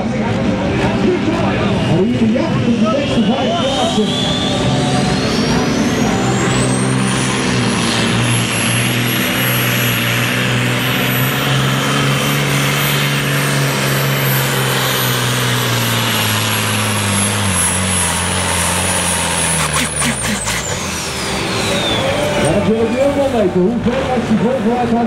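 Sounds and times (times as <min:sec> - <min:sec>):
turbo whistle: 0:02.9 - 0:05.0, 0:21.5 - 0:22.6
diesel truck engine under load: 0:04.0 - 0:25.0.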